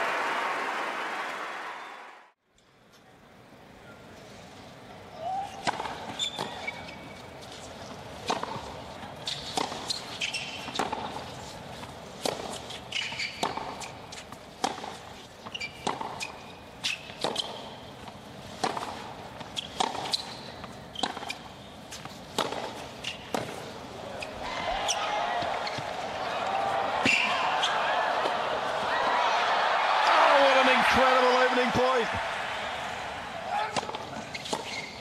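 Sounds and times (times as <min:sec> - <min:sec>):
sneakers squeaking on court: 0:06.0 - 0:07.7, 0:09.2 - 0:11.2, 0:12.3 - 0:14.3, 0:15.4 - 0:17.8, 0:18.7 - 0:26.0, 0:33.6 - 0:35.0
tennis ball bouncing: 0:10.6 - 0:11.2, 0:11.8 - 0:23.6, 0:33.5 - 0:34.8
racket striking ball: 0:22.3 - 0:23.6, 0:33.5 - 0:34.7.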